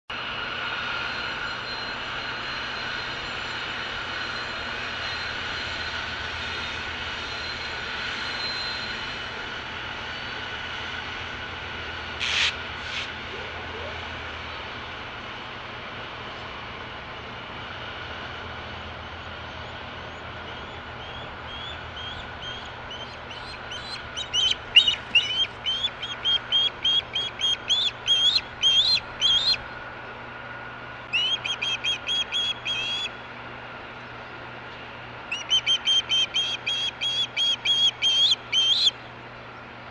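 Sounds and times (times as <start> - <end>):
faint whine: 0.1 - 39.9
freight train rumbling: 0.1 - 39.9
bird high calls: 19.6 - 29.7, 31.1 - 33.2, 34.8 - 39.1
osprey chirping calls: 20.5 - 29.6, 31.1 - 33.2, 35.3 - 39.0.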